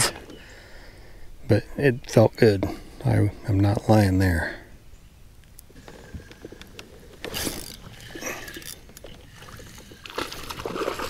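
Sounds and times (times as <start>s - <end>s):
small reel clicks: 5.8s - 9.2s
spinning reel cranking: 7.3s - 8.8s.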